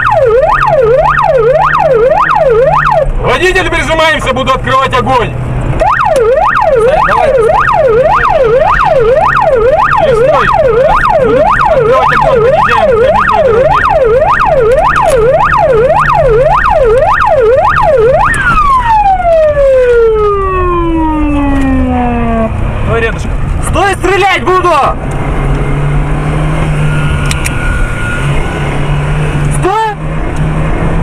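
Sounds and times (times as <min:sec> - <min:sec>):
electronic siren yelping: 0:00.0 - 0:03.2, 0:05.8 - 0:22.5, 0:26.8 - 0:28.8
car engine running: 0:00.0 - 0:31.0.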